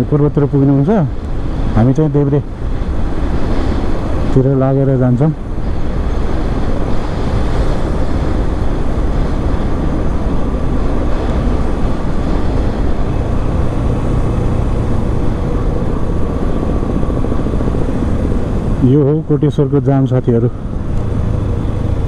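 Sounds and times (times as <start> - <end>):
motorcycle engine and road noise: 0.0 - 22.0
wind rushing over microphone: 0.0 - 22.0.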